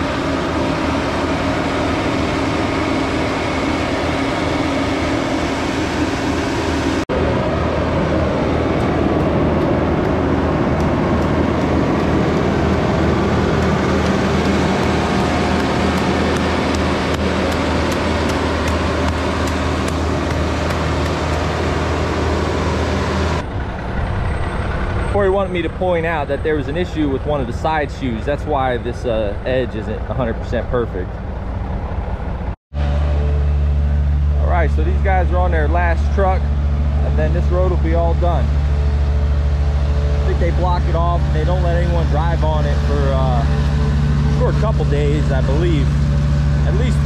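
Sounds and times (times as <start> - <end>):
diesel engine droning: 0.0 - 47.0
machinery ticking clatter: 8.7 - 21.6.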